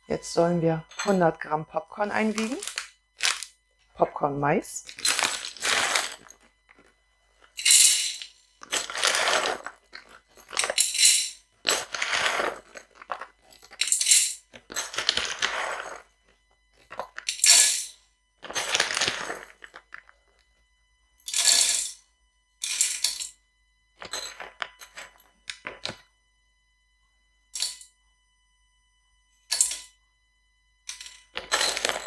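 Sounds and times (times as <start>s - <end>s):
popcorn kernels rattling into metal pot: 2.4s - 3.5s, 4.9s - 6.2s, 7.6s - 16.0s, 16.9s - 17.9s.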